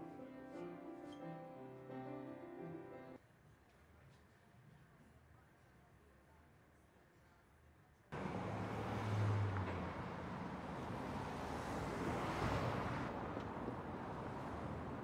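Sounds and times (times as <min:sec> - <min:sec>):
cars driving past: 0:08.2 - 0:15.0.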